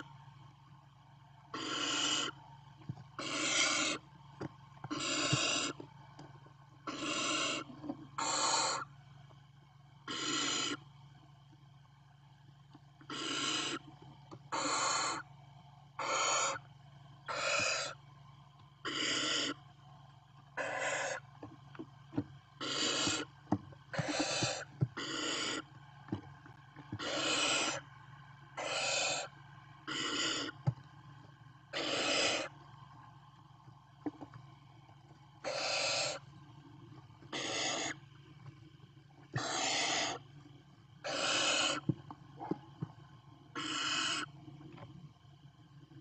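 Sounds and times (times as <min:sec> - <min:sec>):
owl nestlings hissing: 0:01.5 - 0:02.4, 0:03.2 - 0:04.0, 0:04.9 - 0:05.8, 0:06.8 - 0:08.9, 0:10.1 - 0:10.8, 0:13.1 - 0:13.9, 0:14.5 - 0:15.3, 0:16.0 - 0:16.6, 0:17.3 - 0:18.0, 0:18.8 - 0:19.6, 0:20.6 - 0:21.2, 0:22.6 - 0:23.3, 0:23.9 - 0:25.7, 0:27.0 - 0:27.8, 0:28.6 - 0:30.6, 0:31.7 - 0:32.6, 0:35.4 - 0:36.2, 0:37.3 - 0:38.0, 0:39.3 - 0:40.2, 0:41.0 - 0:41.9, 0:43.5 - 0:44.3.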